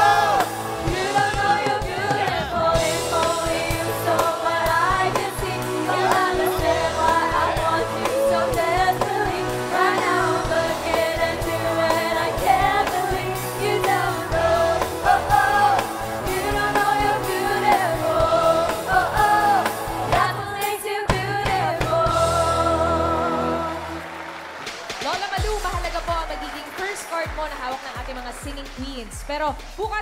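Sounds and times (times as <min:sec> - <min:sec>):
woman singing pop song: 0:00.0 - 0:23.8
bass and drums: 0:00.0 - 0:30.0.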